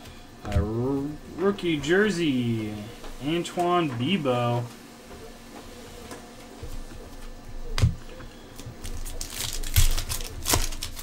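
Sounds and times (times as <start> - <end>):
cards rustling: 8.1 - 11.0
foil wrapper crinkling: 8.5 - 11.0.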